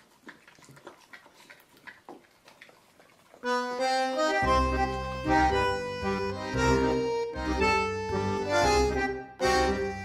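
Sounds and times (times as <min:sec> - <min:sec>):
accordion tune: 0:03.4 - 0:10.0
bass line: 0:04.2 - 0:10.0.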